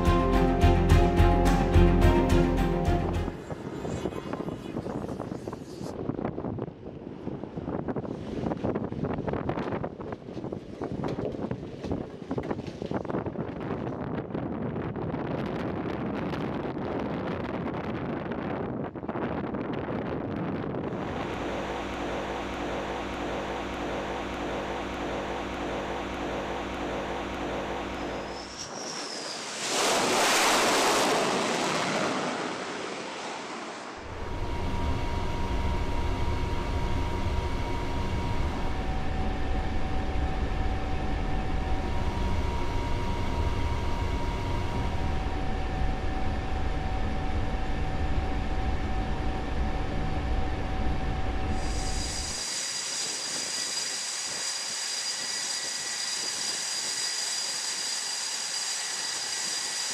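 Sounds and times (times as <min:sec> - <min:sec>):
high jet engine whine: 0:02.7 - 0:06.3, 0:20.6 - 0:59.9
steady mechanical hum: 0:20.3 - 0:31.8, 0:34.0 - 0:59.9
loud rushing surge: 0:28.3 - 0:34.8.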